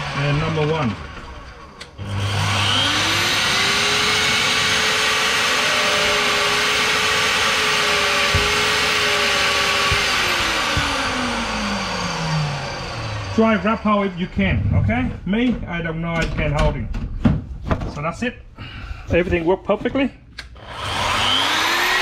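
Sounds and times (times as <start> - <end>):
core drill motor running: 0.0 - 14.4, 20.6 - 22.0.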